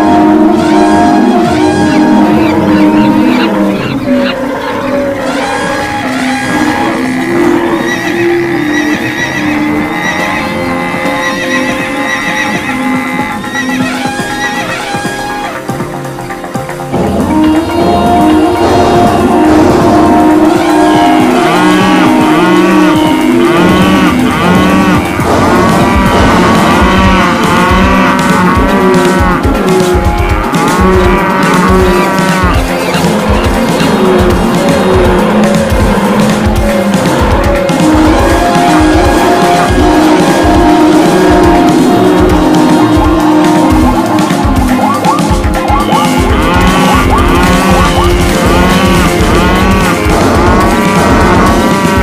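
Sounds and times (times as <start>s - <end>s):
cattle mooing: 0.0s - 15.6s, 17.0s - 52.0s
background music: 0.0s - 52.0s
hooves clattering: 0.0s - 52.0s
horses whinnying: 0.0s - 52.0s.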